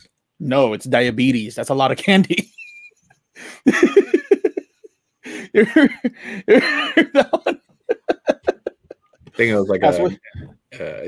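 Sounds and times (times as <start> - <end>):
men laughing: 2.4 - 10.2.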